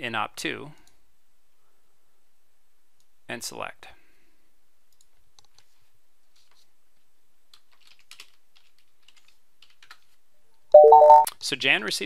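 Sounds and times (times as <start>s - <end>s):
typing on keyboard: 7.5s - 10.1s.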